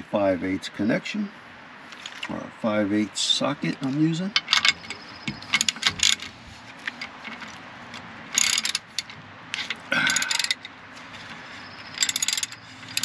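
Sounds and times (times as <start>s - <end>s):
ratchet wrench clicking: 4.4s - 6.3s, 8.3s - 10.8s, 11.7s - 13.0s.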